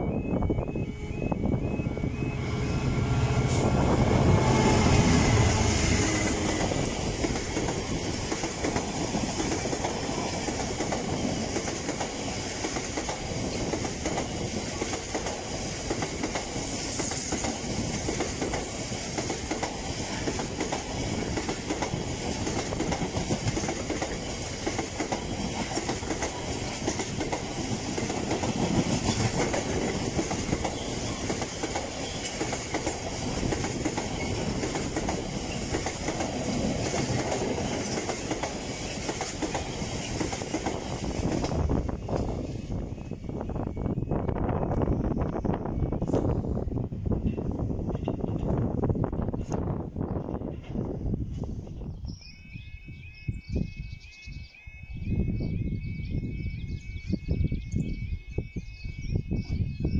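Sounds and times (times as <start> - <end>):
freight train wheels clattering: 2.8 - 42.6, 46.0 - 51.0.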